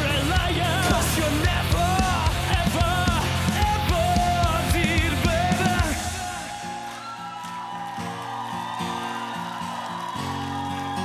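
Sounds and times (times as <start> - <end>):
steady drum beat: 0.0 - 6.8
rock music with singing: 0.0 - 7.7.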